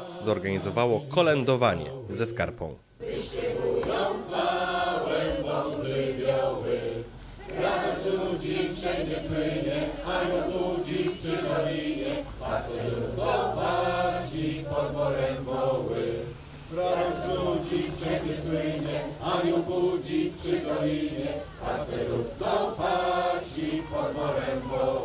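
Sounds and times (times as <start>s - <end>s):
crowd singing a carol: 0.0s - 25.0s.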